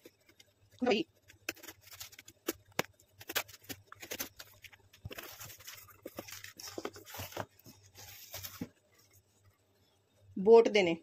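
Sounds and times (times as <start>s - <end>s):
paper leaflet rustling: 1.2s - 8.8s.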